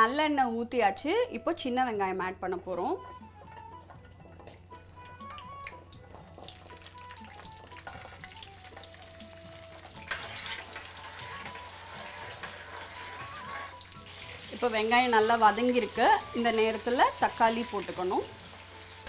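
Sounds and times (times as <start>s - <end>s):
stirring frying shallots: 3.4s - 19.0s
shallots sizzling in hot oil: 4.4s - 19.0s.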